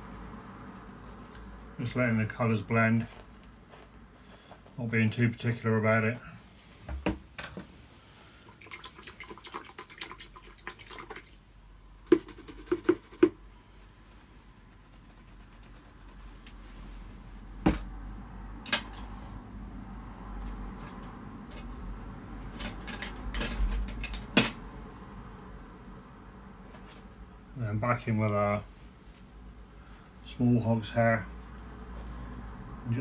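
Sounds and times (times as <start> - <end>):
scratchy rustle of brushes: 0.0 - 5.1, 12.1 - 17.4.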